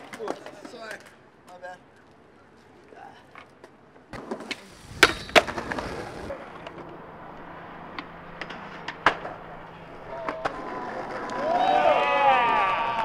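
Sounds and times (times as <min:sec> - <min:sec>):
skateboard wheels rolling on concrete: 0:00.0 - 0:13.0
skateboard cracks: 0:04.1 - 0:07.0, 0:07.9 - 0:13.0.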